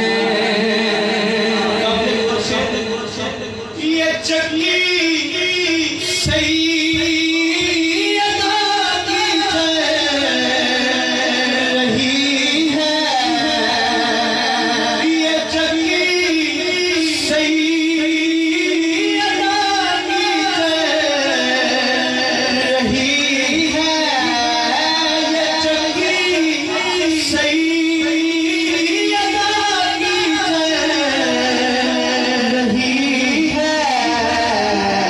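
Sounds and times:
man singing through sound system: 0.0 - 35.0.

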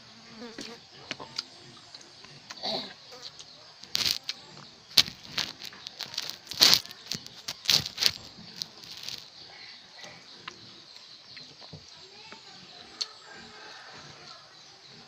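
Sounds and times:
handling rustles and knocks: 4.9 - 9.2.

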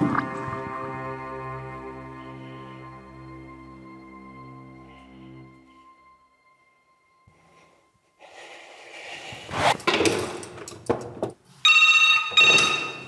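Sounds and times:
electronic ringing tone: 11.6 - 13.0.

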